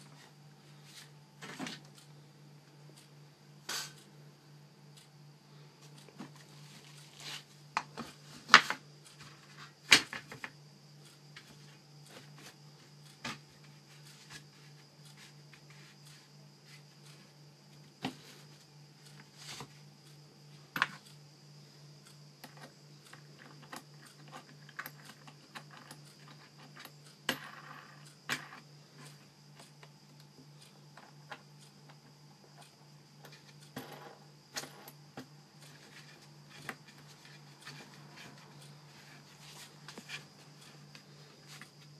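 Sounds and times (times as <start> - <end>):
low electrical hum: 0.0 - 41.9.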